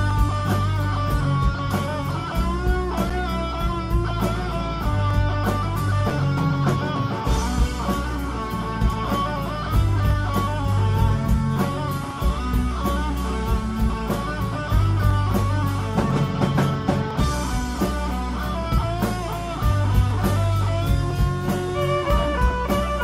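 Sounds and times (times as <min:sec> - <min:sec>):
bass guitar: 0:00.0 - 0:23.0
electric guitar: 0:00.0 - 0:23.0
steady drum beat: 0:00.0 - 0:23.0
fiddle playing: 0:21.7 - 0:23.0.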